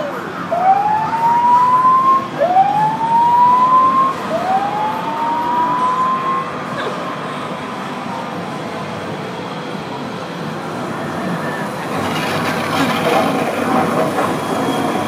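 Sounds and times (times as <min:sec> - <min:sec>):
whooping siren: 0:00.0 - 0:06.7.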